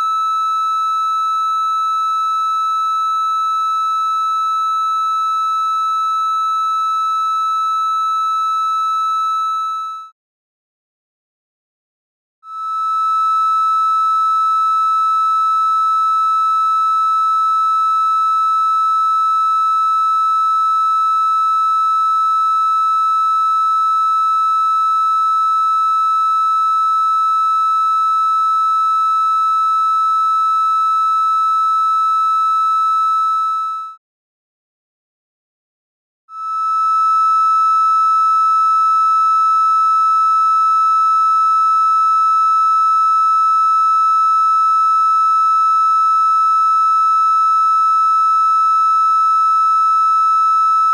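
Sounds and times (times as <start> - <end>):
triangle-wave test tone: 0.0 - 3.0, 12.4 - 34.0, 36.3 - 50.9.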